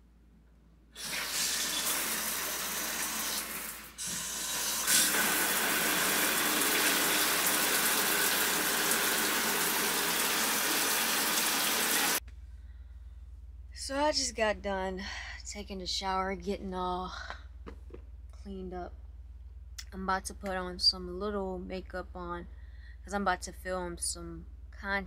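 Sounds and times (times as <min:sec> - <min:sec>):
water running hard: 0:01.0 - 0:12.2.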